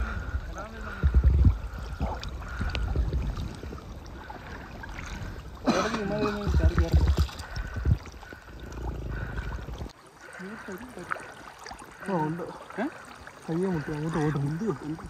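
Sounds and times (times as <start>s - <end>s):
water sloshing and splashing: 0.0s - 15.0s
low rumbling swells: 6.2s - 9.9s.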